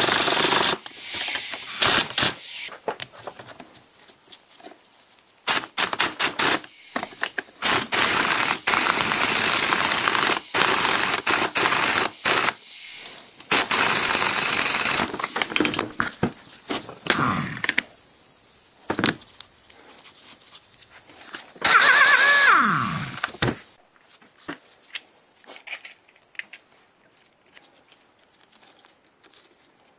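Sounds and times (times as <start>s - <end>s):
power tool running in bursts: 0.0s - 2.7s, 7.6s - 12.6s, 13.5s - 15.2s, 21.6s - 23.2s.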